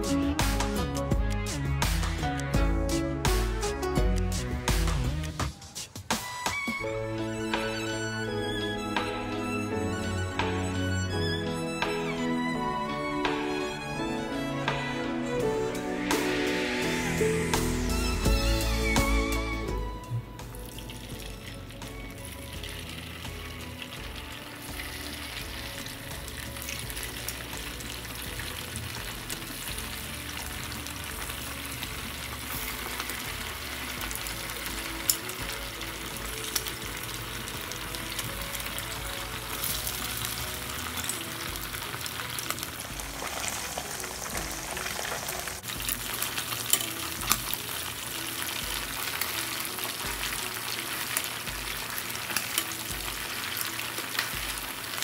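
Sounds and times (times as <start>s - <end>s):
food sizzling in a pan: 15.6s - 55.0s.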